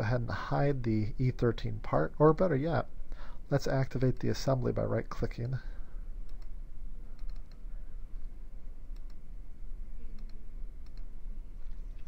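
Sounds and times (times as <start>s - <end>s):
steady low hum: 0.0s - 12.0s
computer mouse buttons clicking: 7.2s - 7.6s, 8.9s - 9.2s, 10.2s - 11.1s.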